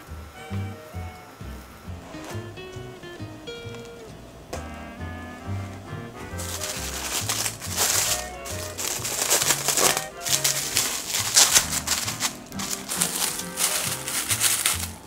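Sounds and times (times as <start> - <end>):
music with bouncy bass line: 0.0 - 15.0
crinkling and crackling: 5.4 - 15.0.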